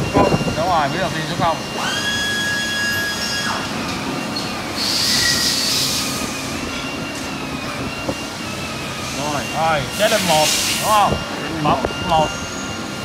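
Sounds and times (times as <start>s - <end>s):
machinery whirring: 0.0s - 13.0s
hiss: 4.8s - 6.2s, 10.0s - 10.9s.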